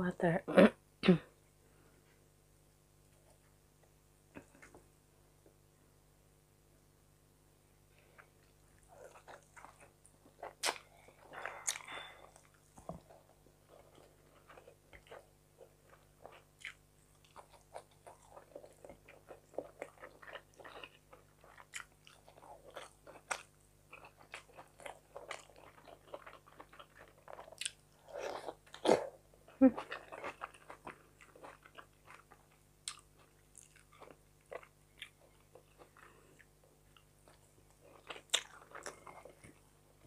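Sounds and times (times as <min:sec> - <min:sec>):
close chewing and mouth sounds: 0:08.0 - 0:40.0.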